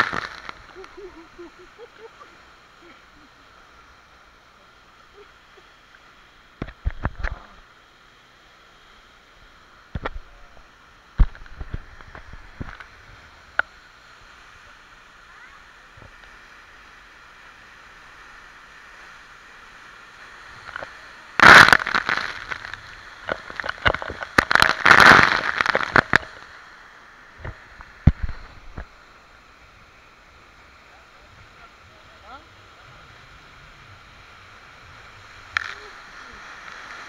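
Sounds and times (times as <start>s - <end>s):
spray crackling on camera: 0.0s - 3.4s, 20.6s - 26.5s, 35.5s - 37.0s
rush of falling water: 0.0s - 37.0s.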